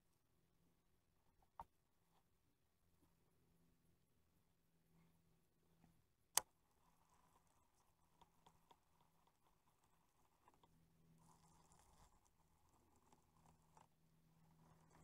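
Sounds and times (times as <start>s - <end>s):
faint ticks: 5.8s - 15.0s.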